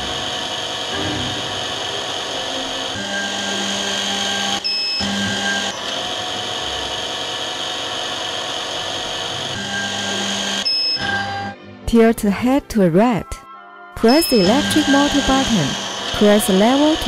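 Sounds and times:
drilling machine motor: 0.0s - 11.5s, 14.1s - 17.0s
short high electronic beeps: 10.6s - 11.4s, 14.0s - 17.0s.

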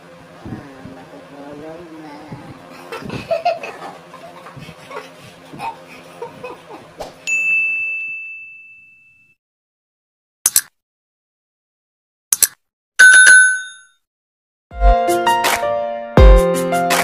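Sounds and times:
people laughing: 2.7s - 7.1s
bright ding sound effect: 7.3s - 9.0s.

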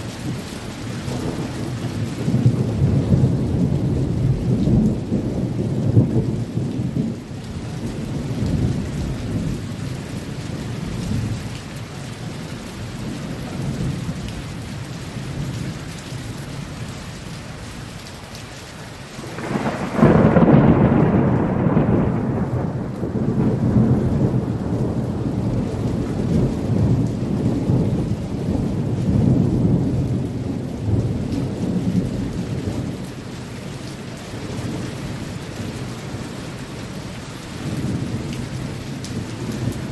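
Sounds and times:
rolling thunder: 0.0s - 11.4s, 19.2s - 33.6s, 34.3s - 39.9s
steady rain: 0.0s - 39.9s
loud thunderclap: 1.0s - 7.3s, 19.2s - 33.0s.

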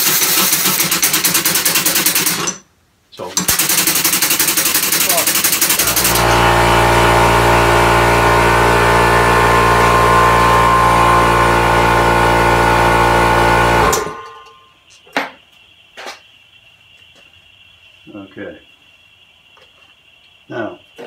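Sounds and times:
compressed-air engine running: 5.3s - 14.4s.

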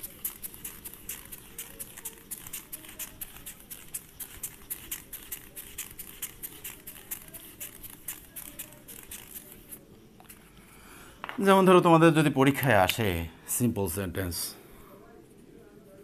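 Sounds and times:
eraser wiping a whiteboard: 0.0s - 10.4s.

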